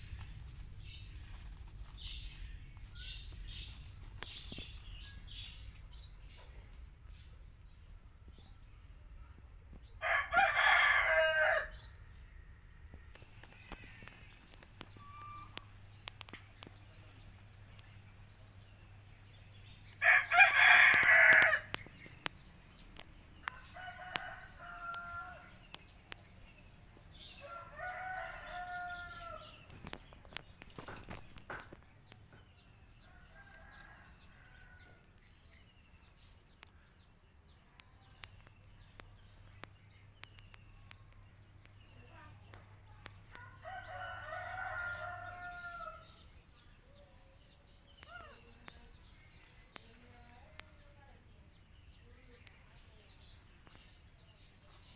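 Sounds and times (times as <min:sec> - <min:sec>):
small birds chirping: 0:00.0 - 0:54.9
roosters crowing: 0:10.0 - 0:15.9, 0:19.6 - 0:21.9, 0:23.2 - 0:25.7, 0:27.0 - 0:30.0, 0:32.8 - 0:35.6, 0:43.3 - 0:46.3.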